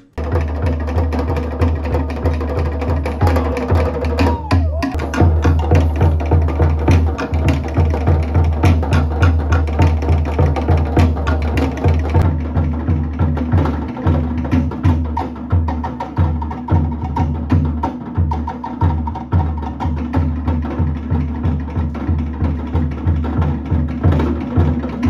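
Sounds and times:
wooden slit drums rapid strokes: 0.2s - 11.8s
pulsing bass drum: 0.2s - 17.8s.

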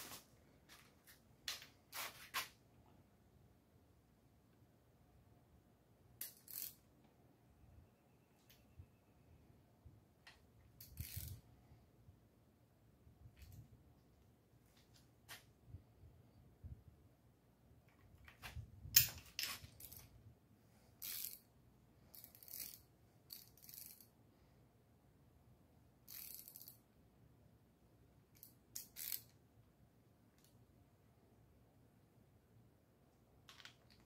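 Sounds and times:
socket ratchet clicking: 6.2s - 6.8s, 10.8s - 11.4s, 21.0s - 21.5s, 22.1s - 24.1s, 26.1s - 26.8s, 28.4s - 29.4s.

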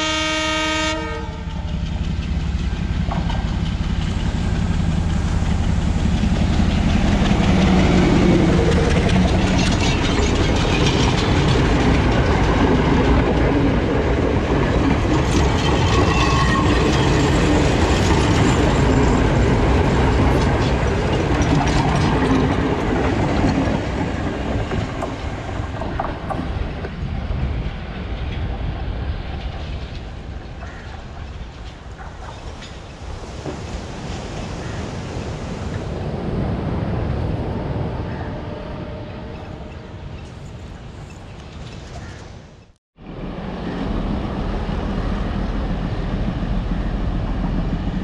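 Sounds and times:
train wheels clattering on rails: 1.4s - 35.8s.

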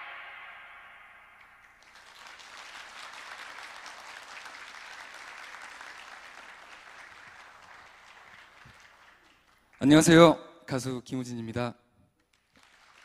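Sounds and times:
audience applauding: 1.5s - 10.1s, 12.3s - 13.0s.

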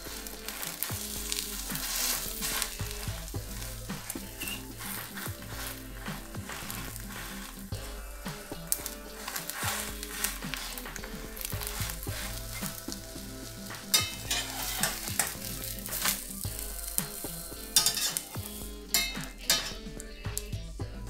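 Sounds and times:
eggs and bread sizzling in pan: 0.0s - 21.0s
spatula clicking on pan: 0.2s - 3.1s, 13.7s - 16.2s, 16.9s - 19.8s.

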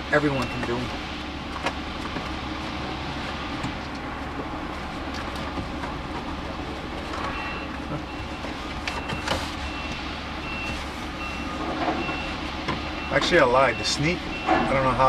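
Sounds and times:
faint high beep: 0.3s - 0.8s, 7.3s - 8.4s.

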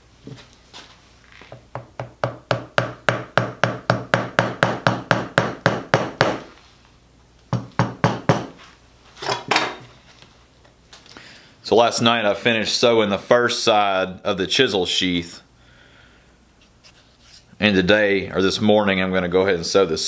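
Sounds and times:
mallet tapping chisel into leather: 1.6s - 6.4s.

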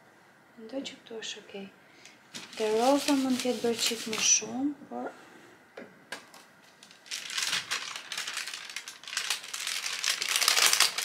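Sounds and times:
ironing paper crinkling: 2.3s - 4.5s, 6.8s - 11.0s.

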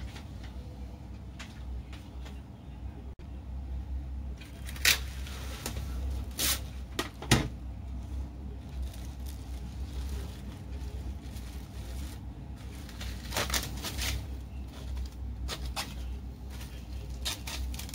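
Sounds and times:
steady low hum: 0.0s - 17.9s
cling wrap crackling and tearing: 4.4s - 6.7s, 8.6s - 16.0s, 16.6s - 17.9s
plastic film rustling: 4.4s - 6.8s, 8.6s - 17.9s.

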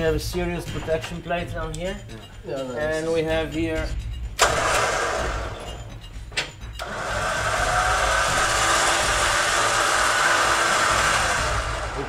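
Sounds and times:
electric winch motor whining: 6.8s - 12.0s.

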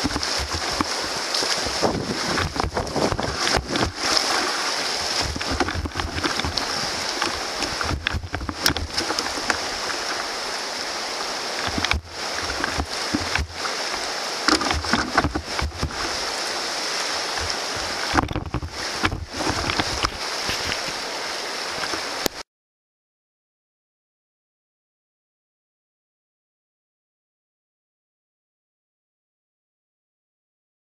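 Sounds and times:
paddle splashes and knocks: 0.0s - 22.4s
whitewater rapids rushing: 0.0s - 22.4s.

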